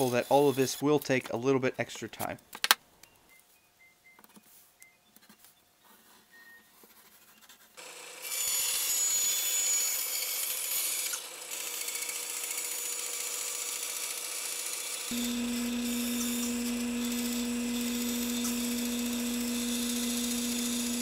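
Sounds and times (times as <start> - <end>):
bandsaw cutting board: 8.3 - 21.0.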